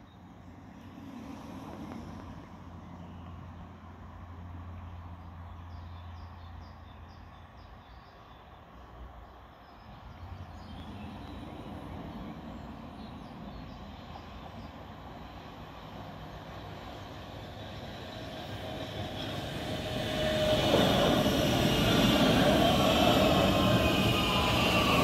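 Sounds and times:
train rumble: 0.2 - 5.9, 9.4 - 25.0
steel wheels on rails: 15.2 - 25.0
running gear whine: 17.3 - 25.0.

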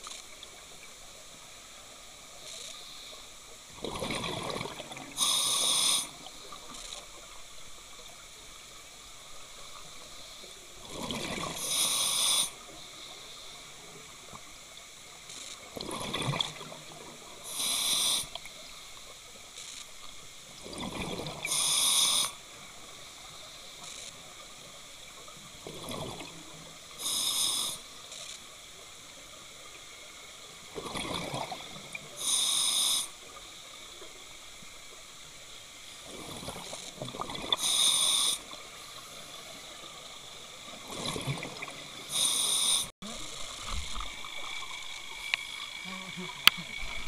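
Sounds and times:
exhaled bubbles: 3.8 - 5.2, 10.8 - 11.7, 15.8 - 16.8, 30.8 - 32.0, 36.1 - 37.6, 40.8 - 41.9
steady low hiss: 4.9 - 10.9, 16.7 - 20.6, 41.6 - 47.0
diver breathing through regulator: 5.2 - 6.1, 11.6 - 12.6, 17.5 - 18.4, 21.5 - 22.4, 27.0 - 27.8, 32.2 - 33.1, 37.6 - 38.5, 42.1 - 42.9.

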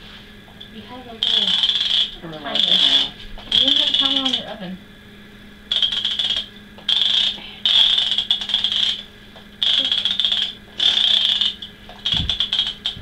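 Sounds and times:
kitchen timer ringing: 1.2 - 4.6, 5.7 - 9.0, 9.6 - 13.0.

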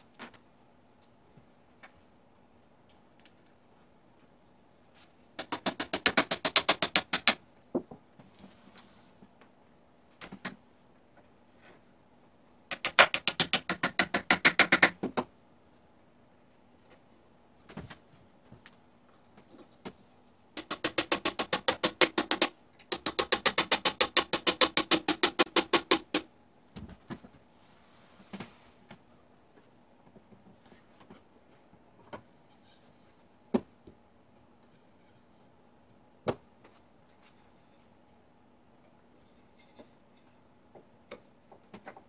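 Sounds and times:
hammer tapping wooden pegs: 5.4 - 8.0, 12.7 - 15.3, 20.6 - 26.3.

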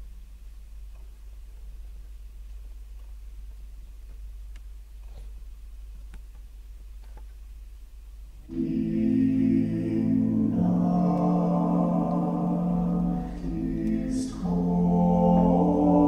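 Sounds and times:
low hum: 0.0 - 16.0
faint clicks: 0.7 - 7.5
choir singing held chords: 8.5 - 16.0.

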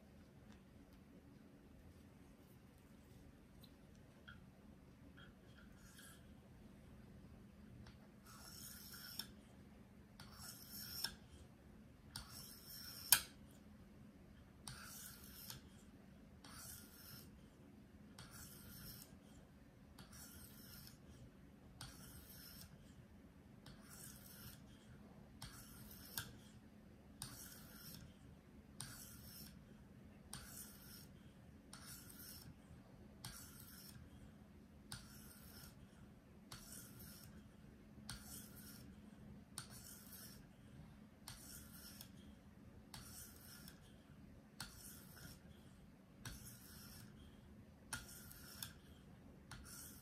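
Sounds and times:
knife scraping on sharpening stone: 8.3 - 9.3, 10.3 - 11.2, 12.2 - 13.3, 20.1 - 21.0, 21.8 - 22.7, 25.4 - 26.4, 27.2 - 28.0, 31.7 - 32.5, 33.2 - 34.0, 39.6 - 40.4, 42.9 - 43.8, 46.2 - 47.1, 47.9 - 48.8, 49.5 - 50.0.

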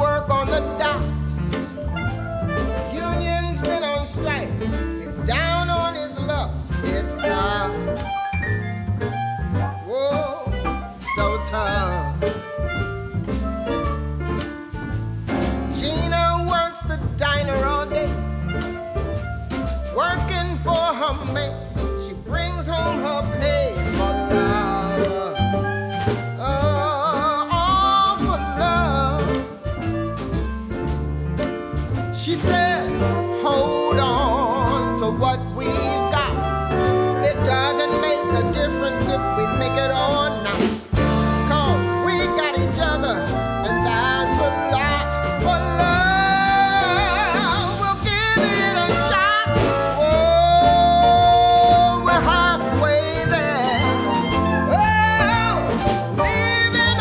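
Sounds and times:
song with vocals bass and drums: 0.0 - 8.2, 19.5 - 30.8, 31.4 - 57.0.

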